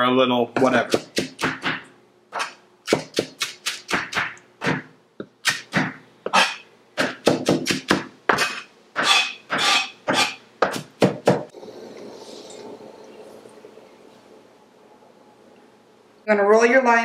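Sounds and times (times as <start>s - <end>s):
knife chopping on plastic board: 0.6s - 11.5s.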